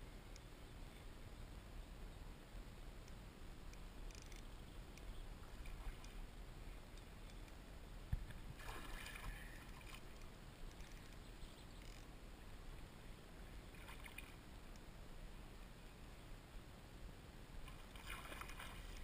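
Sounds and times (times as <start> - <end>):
fish thrashing and splashing water: 17.7 - 19.0.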